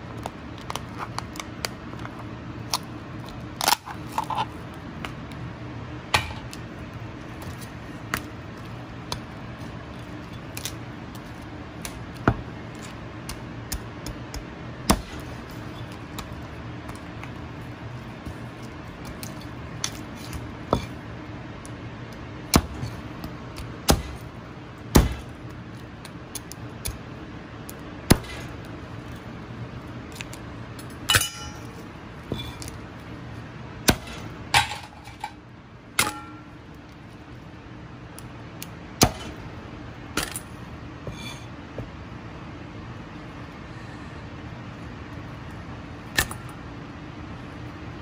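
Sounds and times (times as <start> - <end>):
steady low hum: 0.0 - 48.0
knife cracking crab shell: 2.7 - 4.3, 10.5 - 12.2.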